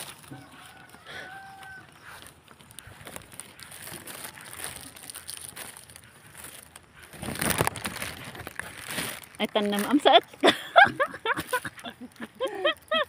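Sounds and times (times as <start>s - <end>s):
footsteps rustling through tall grass: 0.0s - 10.2s
stems crackling: 0.0s - 13.0s.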